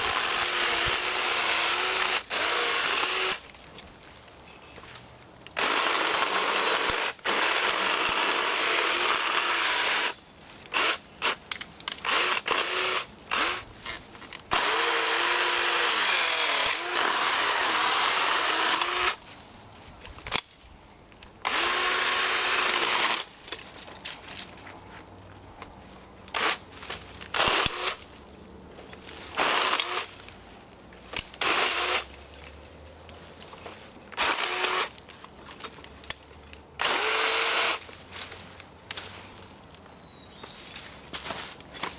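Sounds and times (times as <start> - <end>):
chainsaw cutting branches: 0.0 - 3.5, 5.5 - 11.4, 12.0 - 13.7, 14.5 - 19.2, 21.4 - 23.3, 26.3 - 28.1, 29.2 - 30.2, 31.1 - 32.2, 34.2 - 35.1, 36.8 - 38.3.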